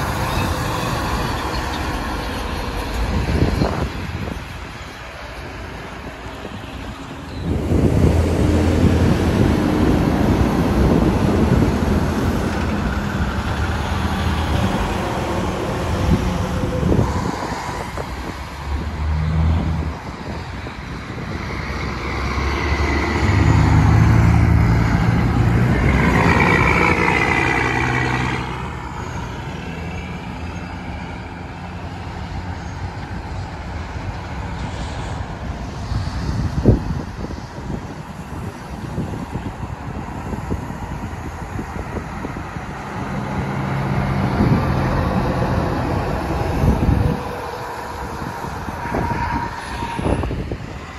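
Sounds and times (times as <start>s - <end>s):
truck diesel engines passing: 0.0s - 50.9s.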